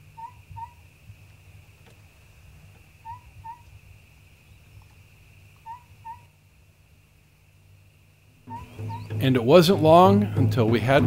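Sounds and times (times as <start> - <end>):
bird hooting call: 0.0 - 0.9, 3.0 - 3.8, 5.6 - 6.4, 8.4 - 9.6
faint high hiss: 0.0 - 11.0.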